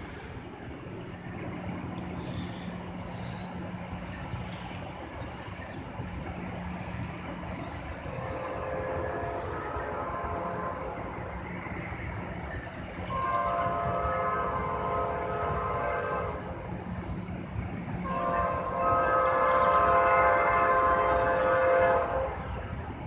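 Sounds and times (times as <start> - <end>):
train rumble: 0.0 - 23.0
locomotive air horn blasts: 6.9 - 12.0, 12.6 - 17.3, 18.0 - 22.8.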